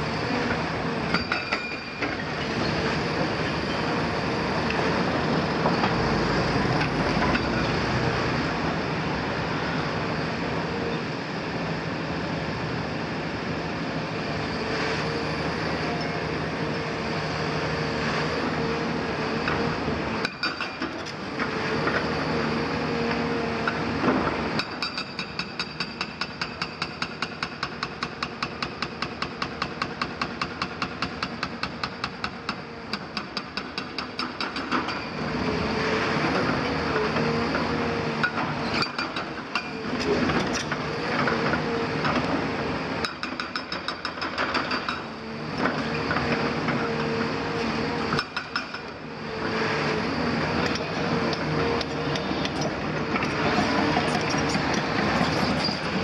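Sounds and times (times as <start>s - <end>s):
excavator engine and hydraulic whine: 0.0s - 56.0s
hydraulic breaker hammering masonry: 24.1s - 35.0s, 43.0s - 46.8s, 48.1s - 49.5s.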